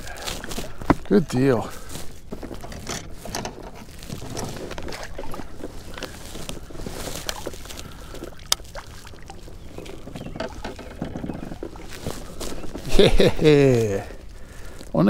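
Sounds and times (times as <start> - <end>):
knocks and clicks in a boat: 2.2 - 8.6, 9.6 - 12.8
water splashing: 3.7 - 14.8.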